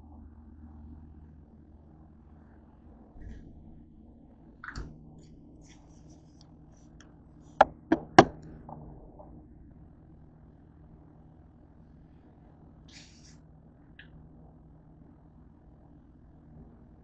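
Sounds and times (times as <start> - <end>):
objects knocking on countertop: 7.6 - 8.3.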